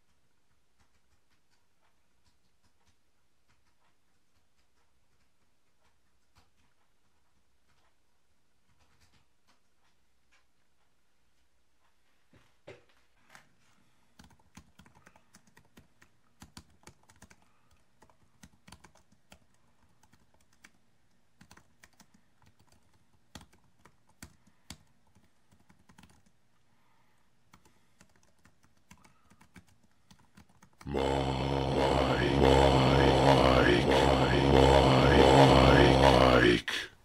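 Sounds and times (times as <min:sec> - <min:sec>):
keyboard typing: 0:14.1 - 0:26.4, 0:27.5 - 0:30.9.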